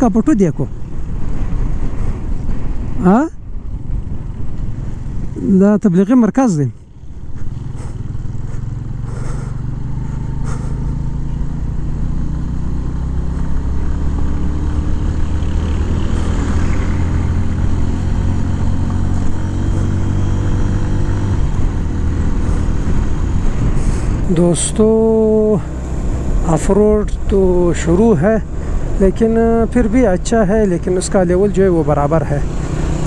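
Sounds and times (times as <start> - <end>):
wind and road noise: 0.0 - 33.0
motorcycle engine running: 6.7 - 33.0.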